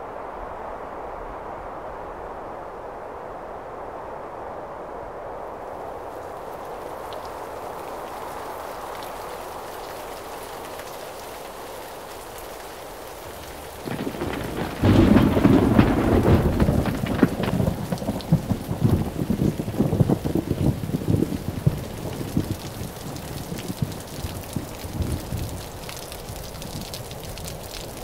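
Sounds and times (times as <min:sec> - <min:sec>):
rain hiss: 0:05.4 - 0:28.0
sharp crackles: 0:08.8 - 0:28.0
thunder rumble: 0:13.2 - 0:27.6.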